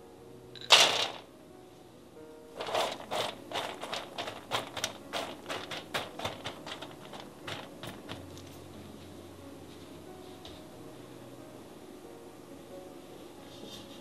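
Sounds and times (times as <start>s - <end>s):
nuts scraping on baking sheet: 2.6s - 8.1s.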